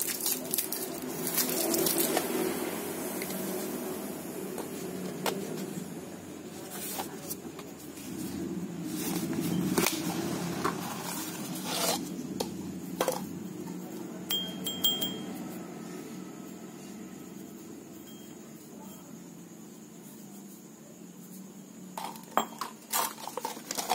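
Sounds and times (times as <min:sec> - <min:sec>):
steady low hum: 0:00.6 - 0:22.0
hole saw scraping: 0:10.7 - 0:12.1
light metallic clinks: 0:14.3 - 0:15.4.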